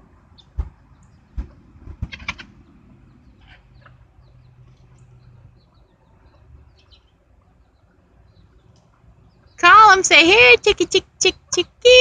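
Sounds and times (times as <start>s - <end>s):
chicks peeping: 0.3s - 9.6s
chickens clucking: 0.4s - 9.5s.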